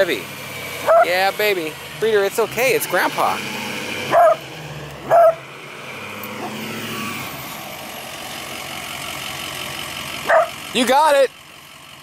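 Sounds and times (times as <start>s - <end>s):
truck engine running: 0.0s - 12.0s
dog barking: 0.8s - 1.1s, 4.1s - 4.4s, 5.1s - 5.4s, 10.2s - 10.6s.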